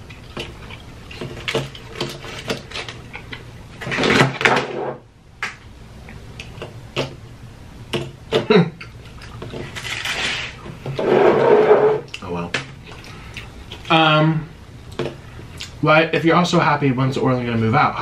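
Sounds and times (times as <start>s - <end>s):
chewing and crunching fried food: 0.0s - 3.6s, 8.8s - 10.6s, 12.0s - 13.9s.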